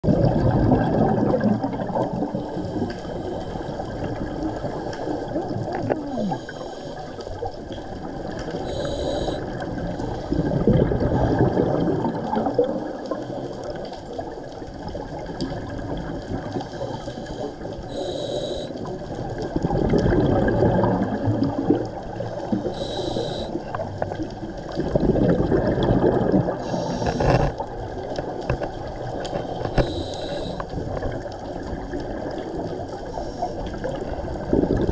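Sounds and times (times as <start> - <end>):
exhaled bubbles rushing: 0.0 - 2.8, 7.4 - 16.8, 18.8 - 34.9
regulator inhale hiss: 2.3 - 3.9, 6.3 - 7.3, 8.6 - 10.5, 16.7 - 18.9, 22.6 - 23.6, 26.6 - 27.5, 29.4 - 30.7, 33.0 - 33.7.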